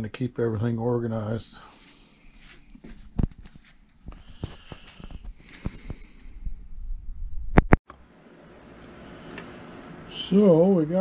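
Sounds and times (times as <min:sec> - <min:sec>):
soft rustling: 0:01.7 - 0:06.4.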